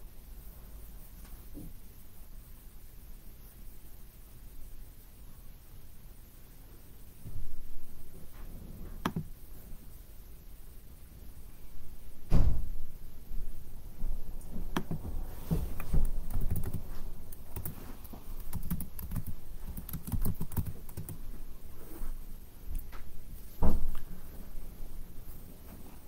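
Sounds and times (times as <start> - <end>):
laptop keyboard typing: 9.0 - 9.3, 14.8 - 15.0, 15.8 - 21.3
dull thump: 12.3 - 12.7, 23.6 - 23.9.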